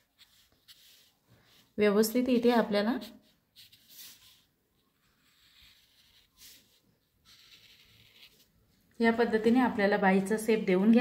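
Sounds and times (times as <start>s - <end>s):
marker scratching on paper: 0.0s - 8.6s.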